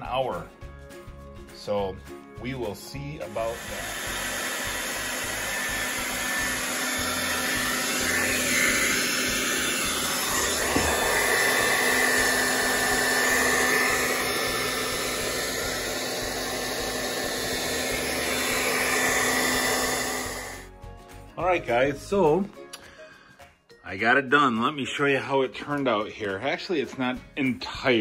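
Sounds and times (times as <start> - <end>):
hair dryer blowing air: 3.0 - 20.7.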